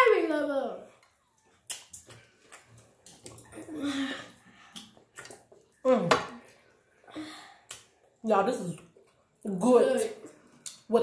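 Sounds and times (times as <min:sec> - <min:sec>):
chewing and lip smacking: 0:00.9 - 0:05.8.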